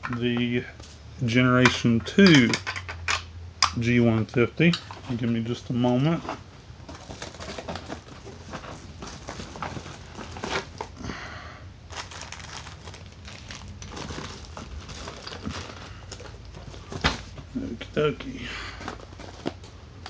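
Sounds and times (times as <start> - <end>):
plastic packaging crinkling: 4.8 - 11.0, 11.9 - 17.8, 18.6 - 20.0.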